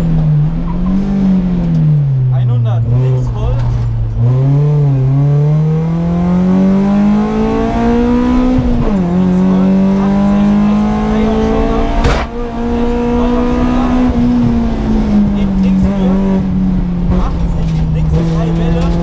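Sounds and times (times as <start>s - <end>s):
car engine accelerating: 0.0s - 19.0s
sharp thump: 11.9s - 12.5s.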